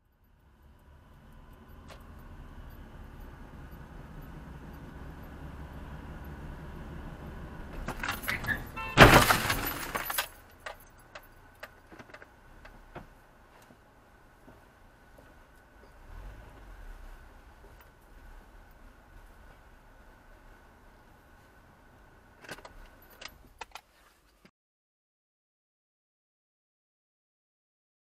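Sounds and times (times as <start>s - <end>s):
car road noise: 0.0s - 24.1s
light clicks and rattles: 9.3s - 13.8s, 22.4s - 24.1s.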